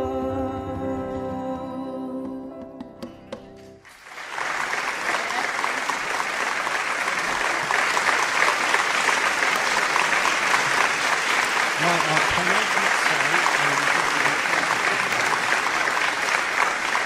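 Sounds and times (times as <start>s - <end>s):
audience applauding: 3.9s - 17.0s.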